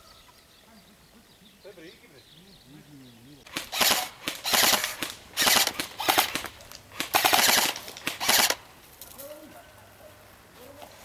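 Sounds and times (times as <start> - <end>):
airsoft rifles firing bursts: 3.5 - 8.6.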